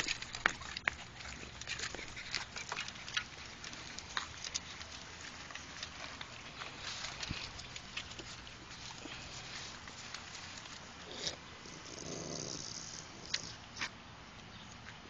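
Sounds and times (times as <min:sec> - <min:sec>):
dogs eating kibble: 0:00.0 - 0:15.0.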